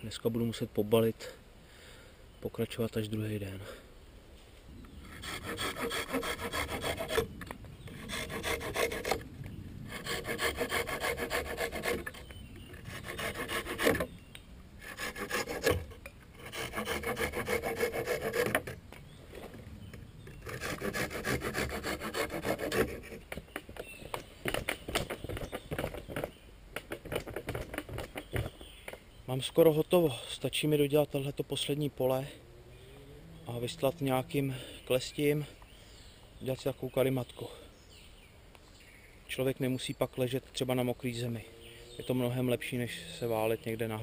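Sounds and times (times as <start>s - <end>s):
hand saw cutting wood: 5.0s - 7.3s, 7.9s - 9.2s, 9.9s - 14.1s, 14.8s - 18.8s, 20.3s - 23.4s
wooden knocks: 23.3s - 29.0s.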